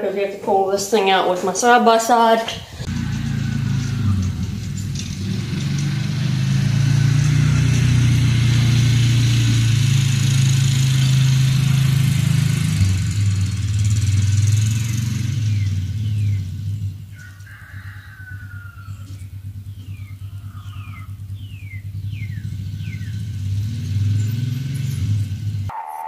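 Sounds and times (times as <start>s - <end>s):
utility vehicle engine humming: 2.5s - 25.8s.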